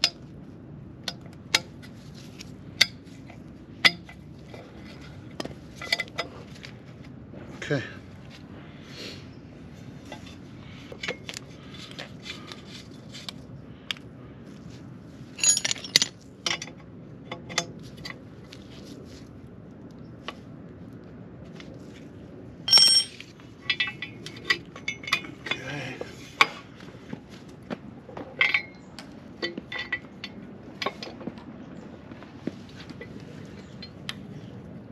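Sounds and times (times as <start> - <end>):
wrench and hand tools clinking: 15.4 - 16.8, 22.7 - 25.7, 28.3 - 31.1.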